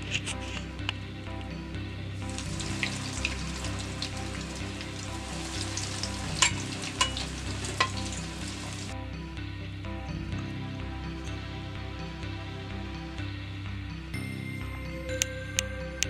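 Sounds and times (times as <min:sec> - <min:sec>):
spring rolls sizzling in hot oil: 0:02.3 - 0:08.9.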